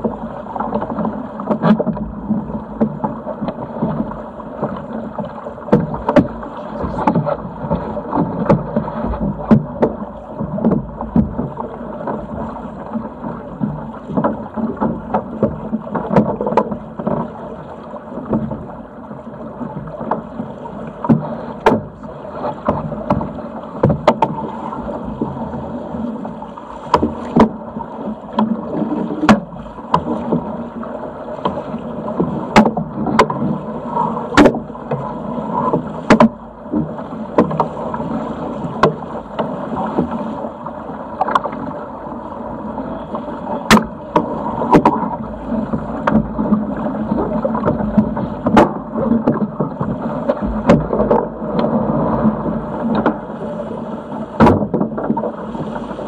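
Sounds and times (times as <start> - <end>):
water rushing along hull: 0.0 - 56.0
wind: 0.0 - 56.0.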